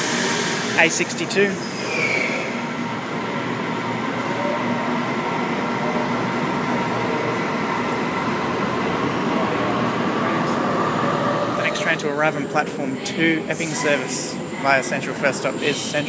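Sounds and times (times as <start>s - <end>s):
train whining tones: 0.0s - 12.7s.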